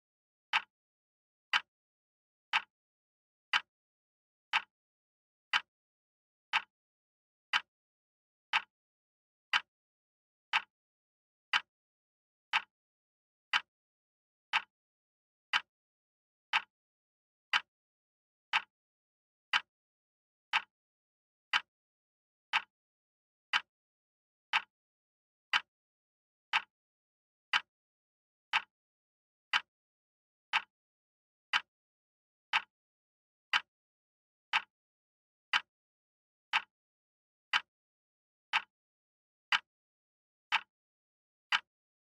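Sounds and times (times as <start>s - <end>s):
wall clock ticking: 0.5s - 0.7s, 2.5s - 2.7s, 4.5s - 4.7s, 6.5s - 6.7s, 7.5s - 7.7s, 8.5s - 8.7s, 10.5s - 10.7s, 12.5s - 12.7s, 14.5s - 14.7s, 15.5s - 15.7s, 16.5s - 16.7s, 17.5s - 17.7s, 18.5s - 18.7s, 19.5s - 19.7s, 20.5s - 20.7s, 21.5s - 21.7s, 22.5s - 22.7s, 23.5s - 23.7s, 24.5s - 24.7s, 25.5s - 25.7s, 26.5s - 26.7s, 27.5s - 27.7s, 28.5s - 28.7s, 29.5s - 29.7s, 30.5s - 30.7s, 31.5s - 31.7s, 32.5s - 32.7s, 33.5s - 33.7s, 34.5s - 34.7s, 35.5s - 35.7s, 36.5s - 36.8s, 37.5s - 37.7s, 38.5s - 38.8s, 39.5s - 39.7s, 40.5s - 40.8s, 41.5s - 42.0s.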